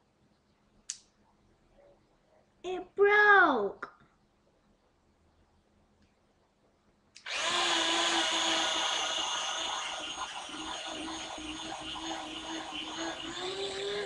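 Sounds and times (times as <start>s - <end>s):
electric pencil sharpener grinding: 7.2s - 14.0s.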